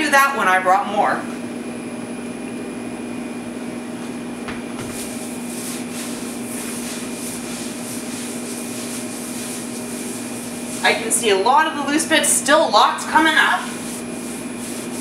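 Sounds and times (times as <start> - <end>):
steady machine hum: 0.0 - 15.0
cloth rubbing on griddle: 4.8 - 15.0.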